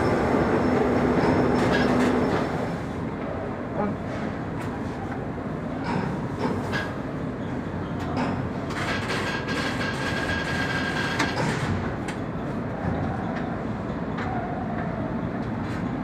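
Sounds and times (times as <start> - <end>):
conveyor rumbling clatter: 0.0 - 16.0.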